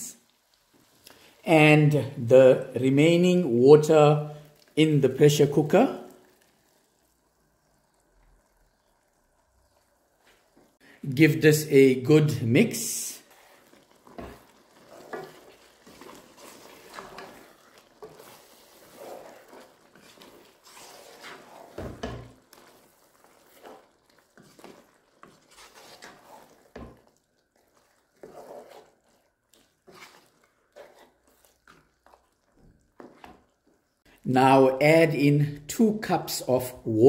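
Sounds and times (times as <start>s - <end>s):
wooden spoon scraping a pan: 11.7s - 34.1s.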